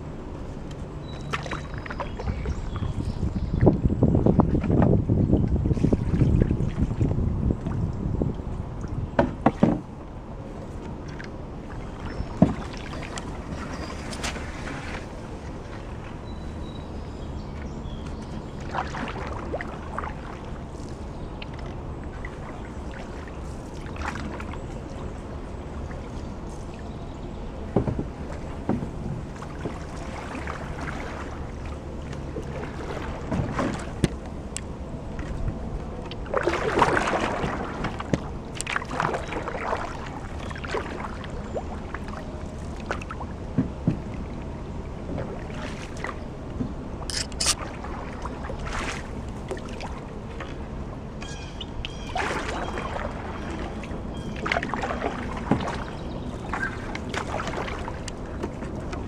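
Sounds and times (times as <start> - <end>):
canoe paddle splashing: 0.0 - 59.0.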